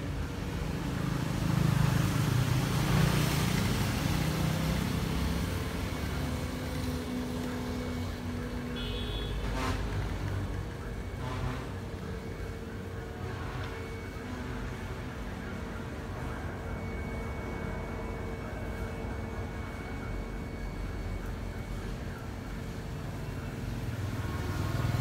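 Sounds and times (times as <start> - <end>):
motor vehicle passing by: 0.0 - 8.5, 23.5 - 25.0.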